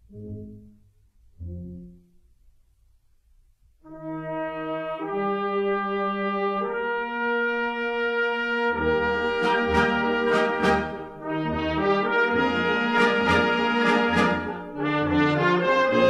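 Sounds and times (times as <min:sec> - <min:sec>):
brass band playing: 0:03.8 - 0:16.0.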